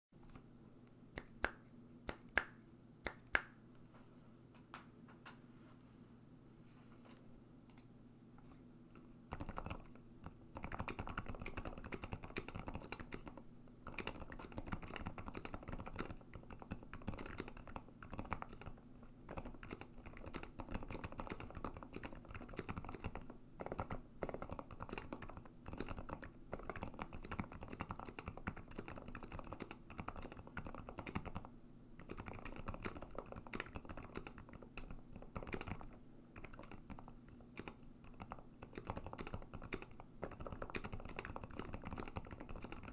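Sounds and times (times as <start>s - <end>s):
fast typing on mechanical keyboard: 9.3s - 42.9s.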